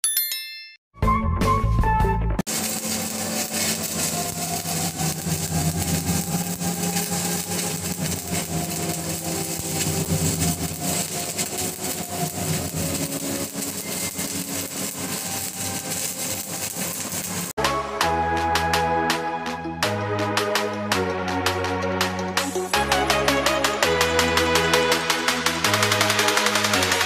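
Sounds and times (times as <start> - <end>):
welding arc crackling: 2.5 - 17.6, 22.4 - 27.0.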